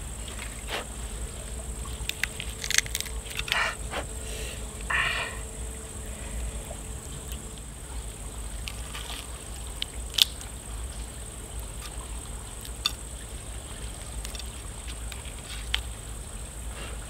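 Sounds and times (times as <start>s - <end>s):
high insect drone: 0.0s - 17.0s
lobster shell cracking: 2.0s - 3.8s, 8.6s - 10.5s, 12.6s - 13.0s, 14.0s - 15.9s.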